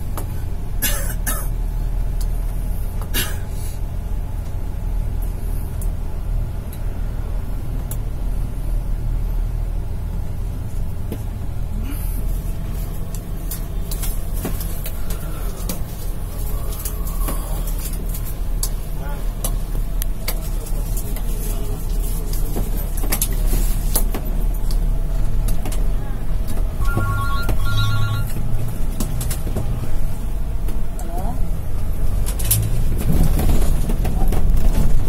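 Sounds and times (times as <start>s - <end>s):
bus engine and tyres rumbling: 0.0s - 35.0s.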